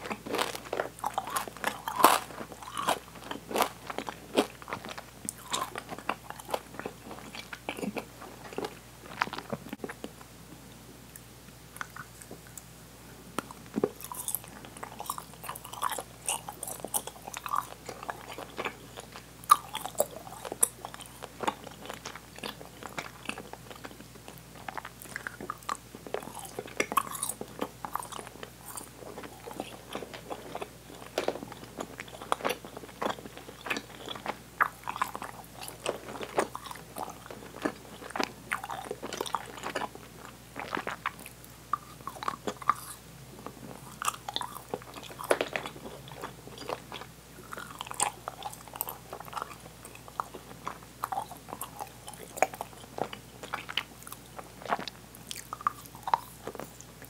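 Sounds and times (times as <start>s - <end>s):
open-mouth chewing: 0.0s - 10.3s, 11.1s - 12.7s, 13.4s - 57.0s.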